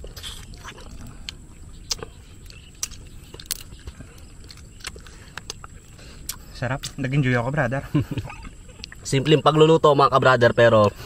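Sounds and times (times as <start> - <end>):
mouth and lip smacks: 0.0 - 7.0
low steady rumble: 0.0 - 11.0
crab shell cracking: 0.2 - 7.0.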